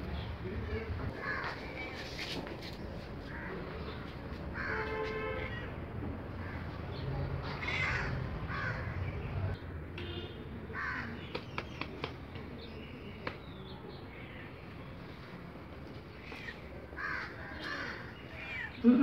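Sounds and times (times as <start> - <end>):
crows cawing: 1.2 - 1.7, 3.3 - 5.7, 7.6 - 9.0, 10.8 - 11.2, 16.2 - 18.7.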